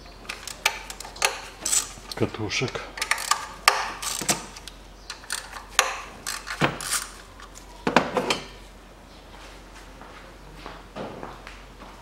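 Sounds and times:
socket ratchet clicking: 0:00.3 - 0:02.2, 0:03.0 - 0:07.2.

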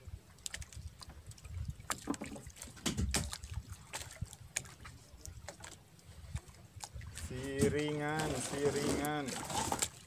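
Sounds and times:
water slapping boat hull: 0:00.0 - 0:10.0
sharp splashes or knocks: 0:01.8 - 0:05.8.

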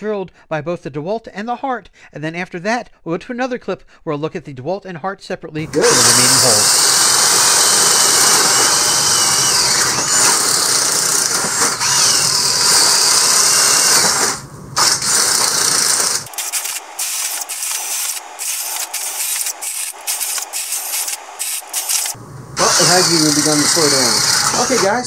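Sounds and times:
cordless drills boring wood: 0:05.6 - 0:25.0.

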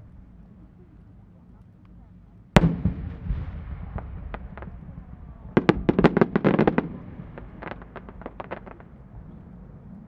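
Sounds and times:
fireworks popping: 0:02.6 - 0:09.0.

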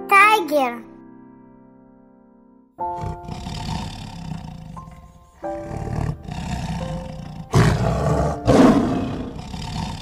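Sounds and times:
tiger roaring: 0:02.9 - 0:10.0.

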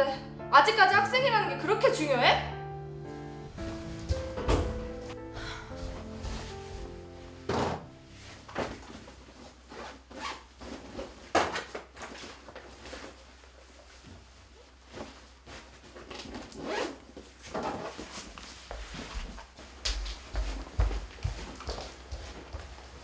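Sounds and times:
fabric bag rustling: 0:03.4 - 0:23.0
zipper: 0:08.9 - 0:12.2, 0:15.9 - 0:18.3.

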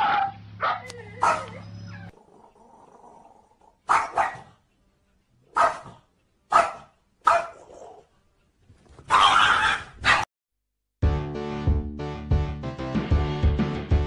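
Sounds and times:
small dog barking: 0:00.0 - 0:02.2, 0:03.8 - 0:04.6, 0:05.5 - 0:08.1, 0:09.0 - 0:10.3.

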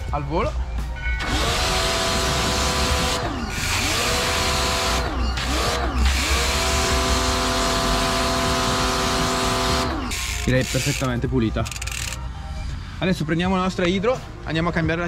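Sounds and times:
pressure washer pump whining: 0:01.2 - 0:12.2.

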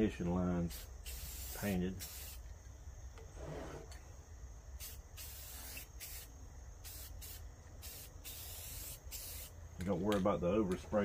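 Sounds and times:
spray paint can hissing: 0:00.7 - 0:02.5, 0:04.8 - 0:09.6.

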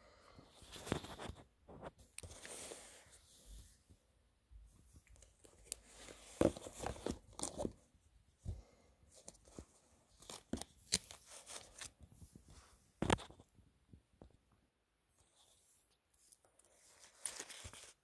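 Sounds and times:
cards rustling and tapping: 0:05.1 - 0:07.8, 0:16.8 - 0:18.0.

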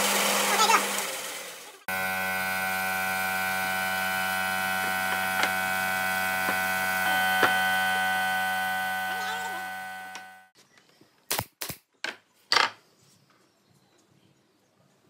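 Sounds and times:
band saw cutting wood: 0:00.0 - 0:10.5
steady multi-tone hum: 0:01.9 - 0:10.5.

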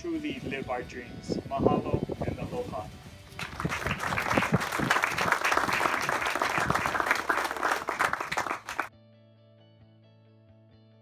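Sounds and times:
faint music: 0:00.0 - 0:07.7
audience applauding: 0:03.4 - 0:08.9.

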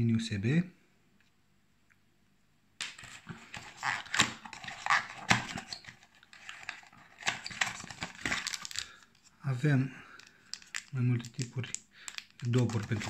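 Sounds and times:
rummaging in cardboard box: 0:03.1 - 0:08.8, 0:12.4 - 0:13.0.

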